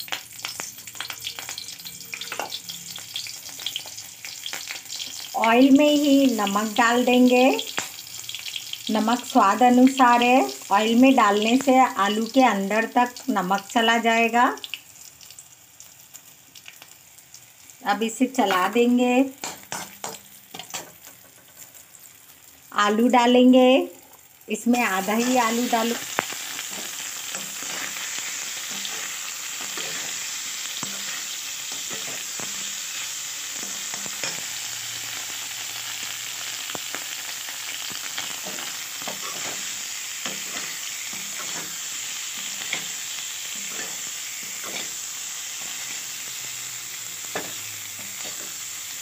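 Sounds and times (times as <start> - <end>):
potatoes sizzling in hot oil: 0.0 - 49.0
metal spatula scraping pan: 25.2 - 34.6, 38.2 - 46.1.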